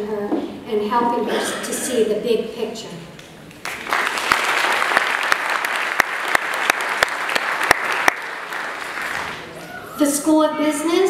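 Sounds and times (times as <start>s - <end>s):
audience applauding: 3.6s - 9.6s.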